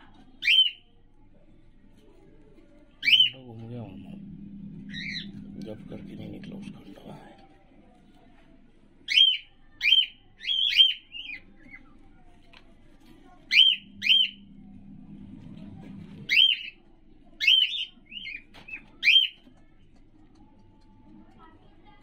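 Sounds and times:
cockatiel shrill calls: 16.3 - 16.7.

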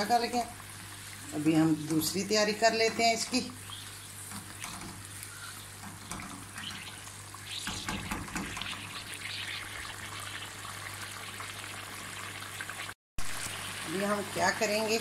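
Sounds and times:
thick gravy bubbling and popping: 3.5 - 14.1.

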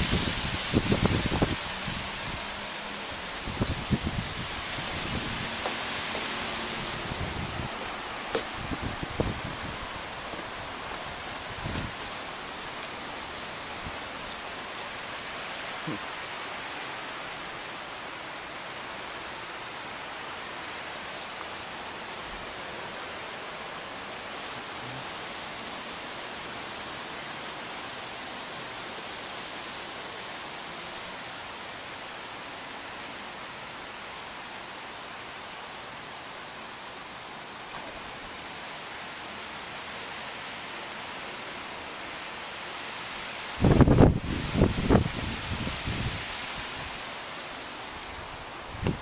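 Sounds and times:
wind rustling tree leaves: 0.0 - 49.0.

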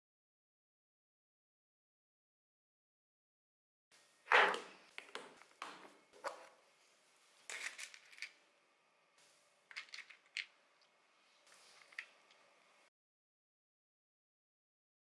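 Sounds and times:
small plastic parts rattling: 9.7 - 10.5.

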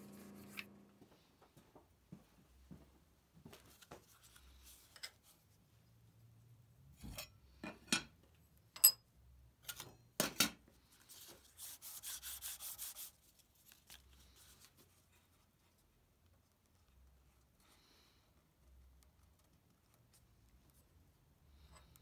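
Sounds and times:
soft handling noise: 0.3 - 5.9.

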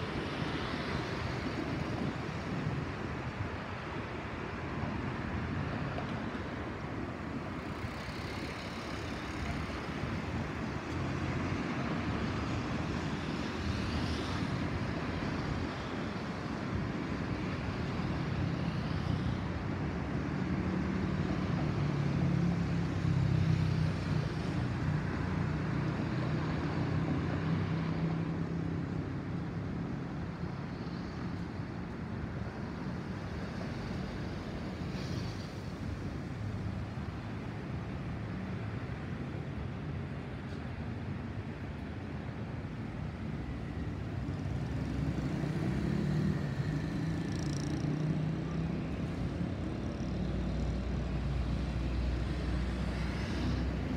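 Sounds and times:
jet engines rumbling overhead: 0.0 - 53.9.

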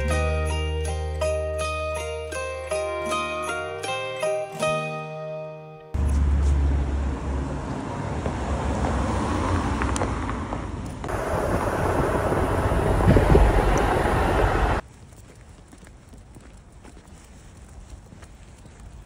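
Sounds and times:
vehicle road noise rumble: 6.0 - 19.0.

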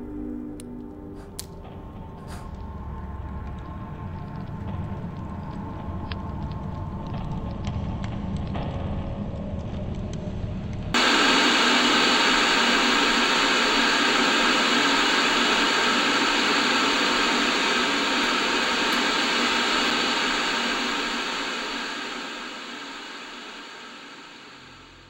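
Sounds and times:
television static hiss: 11.0 - 25.0.

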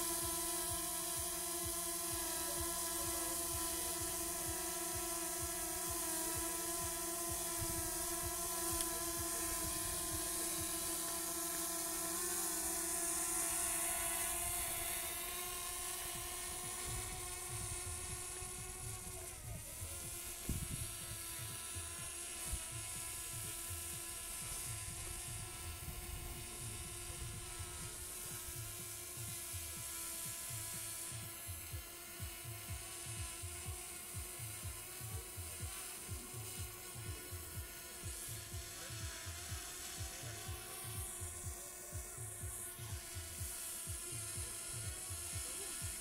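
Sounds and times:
drone propellers whining: 0.0 - 46.0
wind rumble on microphone: 17.6 - 21.5.

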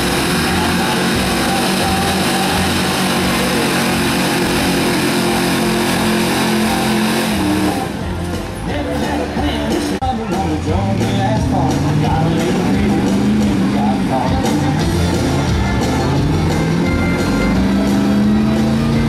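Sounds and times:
faint country music: 0.0 - 19.0
truck engine at full throttle: 0.0 - 19.0.

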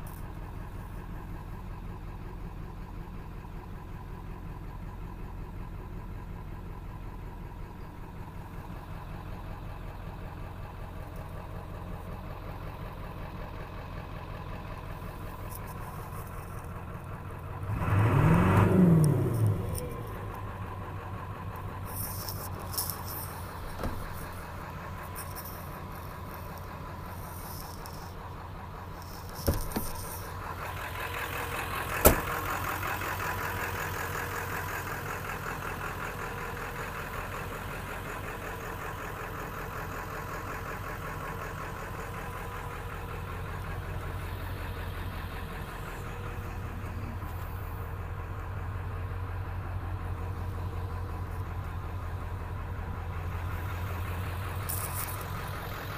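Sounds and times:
diesel engine idling: 0.0 - 55.9
sharp clunks: 23.6 - 24.3, 29.4 - 30.1, 32.0 - 32.4.

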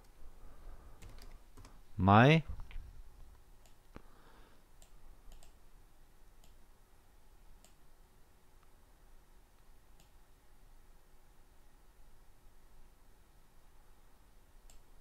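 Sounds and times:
computer mouse clicks: 4.8 - 5.6, 6.4 - 6.6, 14.6 - 14.9.

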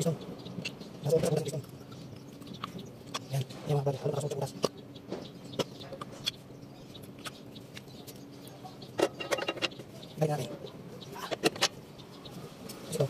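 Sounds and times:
metal parts clicking and tapping: 9.0 - 9.8.

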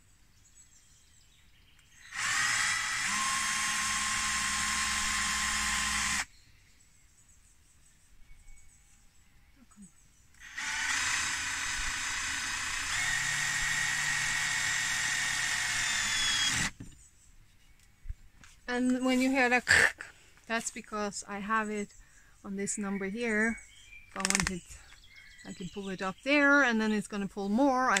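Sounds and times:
cordless drill motor whine: 2.0 - 6.3, 10.4 - 16.8.

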